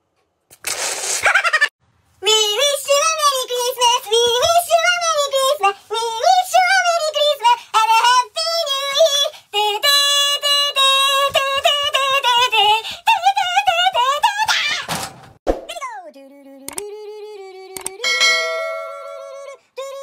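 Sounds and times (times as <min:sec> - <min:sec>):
high sped-up singing: 0:15.7 - 0:20.0.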